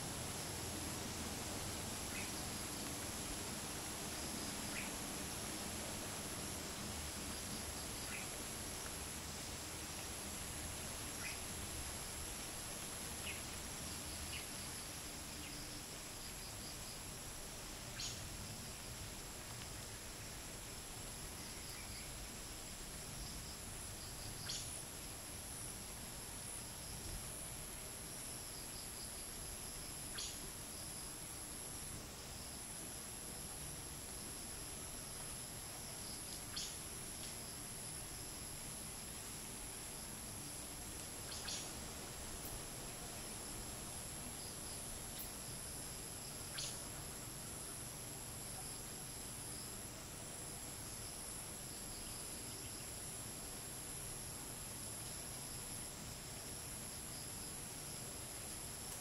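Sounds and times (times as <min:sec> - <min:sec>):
crickets and cicadas ringing: 0:00.0 - 0:59.0
light wind hiss: 0:00.0 - 0:59.0
pulsing high insect trill: 0:28.1 - 0:58.9.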